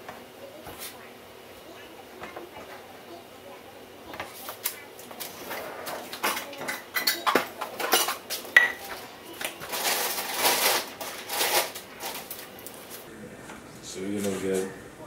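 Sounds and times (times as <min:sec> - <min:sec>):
metal utensils clattering: 0:04.6 - 0:12.5.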